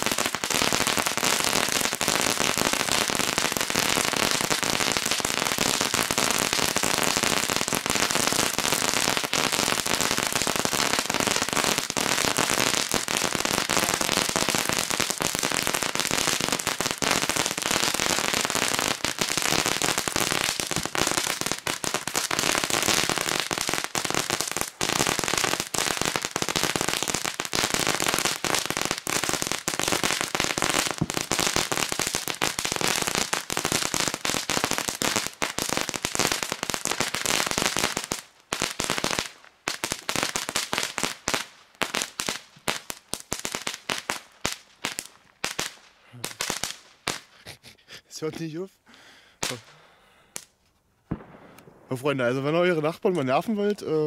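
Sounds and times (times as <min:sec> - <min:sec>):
crackling fireworks fountains: 0:00.0 - 0:54.0.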